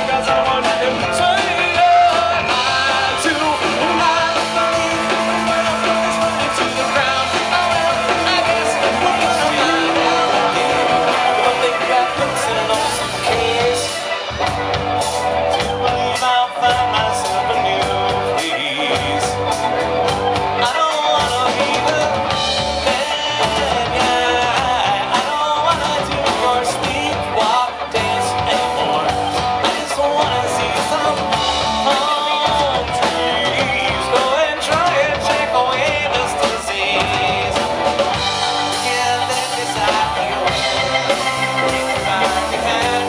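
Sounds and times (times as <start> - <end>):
man singing: 0.0 - 14.4, 15.5 - 43.0
drum kit: 0.0 - 43.0
electric bass: 0.0 - 43.0
electric guitar: 0.0 - 43.0.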